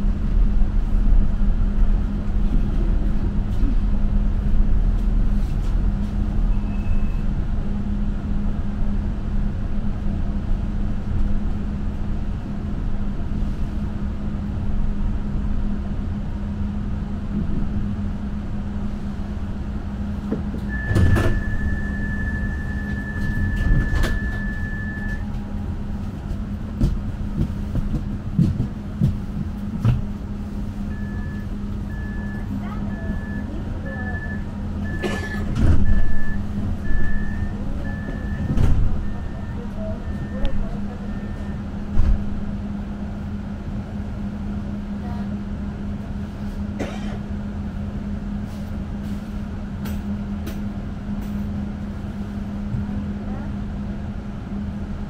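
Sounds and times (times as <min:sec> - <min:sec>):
tram rumble and motor hum: 0:00.0 - 0:55.0
high door-warning beep: 0:20.7 - 0:25.3, 0:30.9 - 0:41.6.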